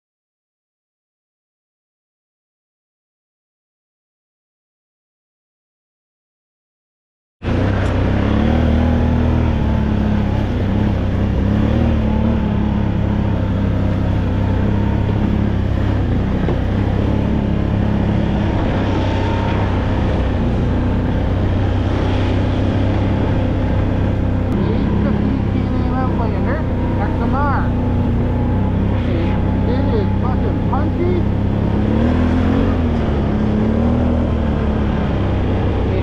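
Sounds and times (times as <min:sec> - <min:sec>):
vehicle engine droning: 0:07.4 - 0:36.0.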